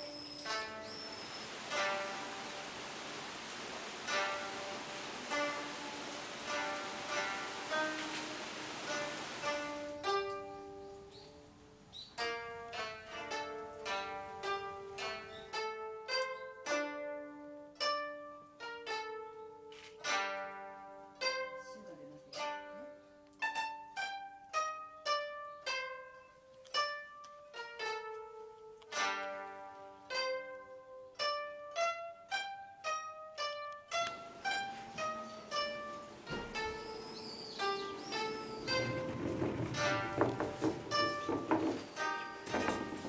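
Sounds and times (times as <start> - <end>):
plucked zither melody: 0.0 - 43.0
sustained musical backing: 0.0 - 43.0.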